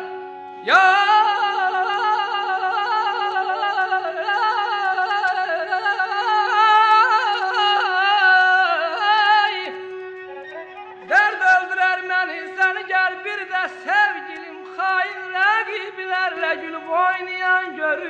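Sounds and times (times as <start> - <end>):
person singing with trills: 0.0 - 18.0
droning instrumental note: 10.0 - 11.1.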